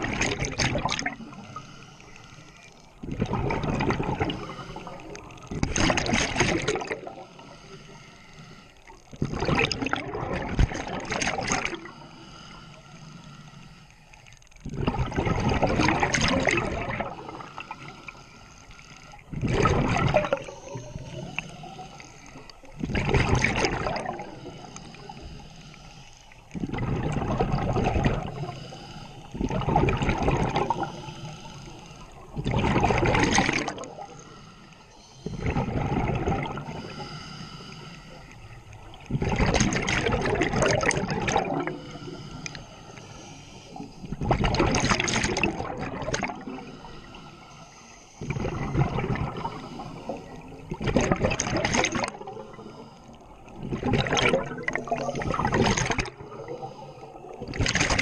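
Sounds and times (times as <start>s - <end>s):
underwater regulator air bubbling: 3.0s - 7.7s, 9.2s - 12.6s, 14.6s - 18.2s, 19.1s - 25.4s, 26.5s - 34.4s, 35.2s - 37.8s, 38.9s - 43.0s, 43.7s - 46.9s, 48.2s - 52.9s, 53.5s - 58.0s.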